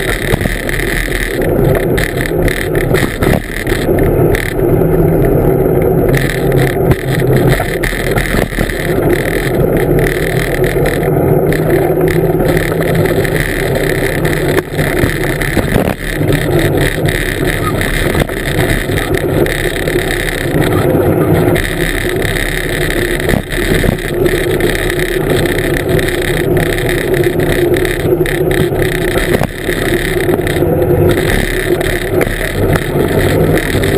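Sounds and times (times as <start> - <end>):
wheels rumbling over ground: 0.0 - 33.9.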